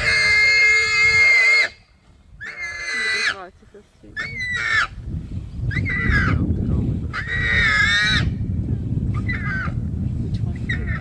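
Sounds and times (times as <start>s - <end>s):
warthog squealing: 0.0s - 1.8s, 2.4s - 3.4s, 4.2s - 4.9s, 5.7s - 6.4s, 7.1s - 8.3s, 9.2s - 9.8s
low rough rumble: 0.0s - 11.0s.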